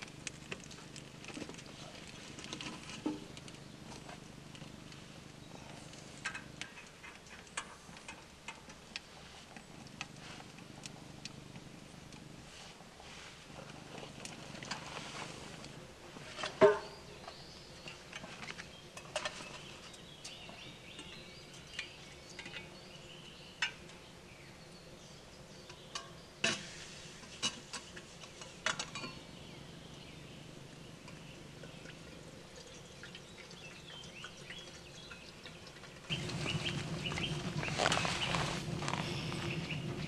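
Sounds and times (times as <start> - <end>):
birds chirping: 16.7 - 26.4, 29.0 - 40.0.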